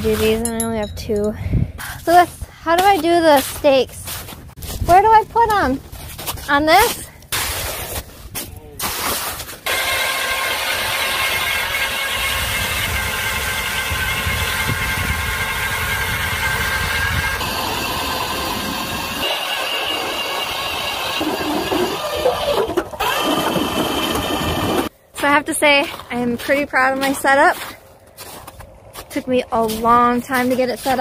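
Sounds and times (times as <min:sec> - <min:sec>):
ice auger motor whine: 0:09.6 - 0:24.9.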